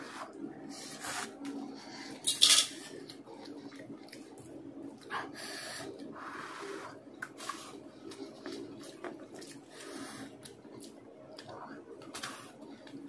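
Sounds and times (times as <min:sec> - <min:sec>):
person chewing noodles: 0:05.8 - 0:13.0.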